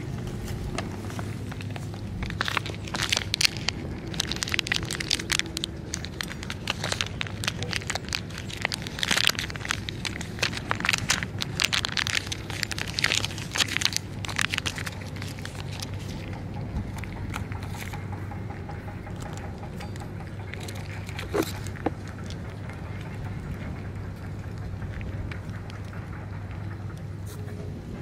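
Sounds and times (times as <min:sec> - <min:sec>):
cat crunching dry kibble: 0:00.0 - 0:27.6
steady low rumble: 0:00.0 - 0:28.0
plastic pouch crinkling: 0:00.2 - 0:18.4, 0:19.0 - 0:23.2.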